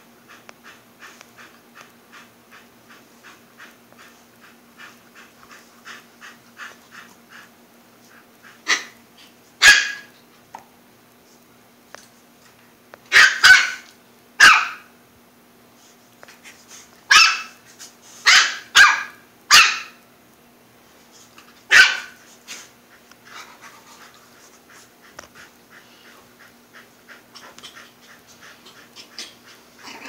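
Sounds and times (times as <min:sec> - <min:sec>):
puppy yapping: 0:09.6 - 0:10.1, 0:13.1 - 0:14.9, 0:17.1 - 0:17.6, 0:18.3 - 0:20.0, 0:21.7 - 0:22.2.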